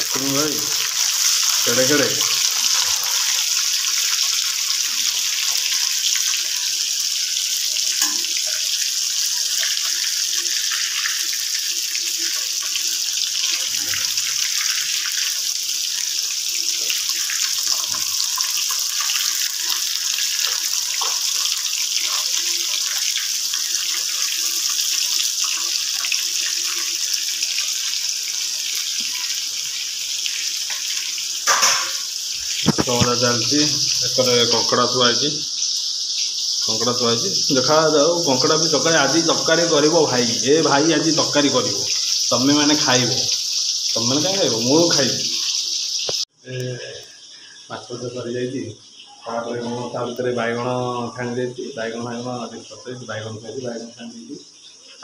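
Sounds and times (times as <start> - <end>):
fish sizzling in hot oil: 0.0 - 55.0
oil popping and spitting: 31.4 - 33.3.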